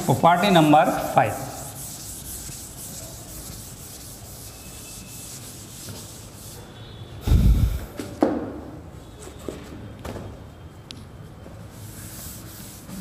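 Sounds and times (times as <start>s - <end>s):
duster rubbing blackboard: 0.6s - 6.7s, 12.0s - 13.0s.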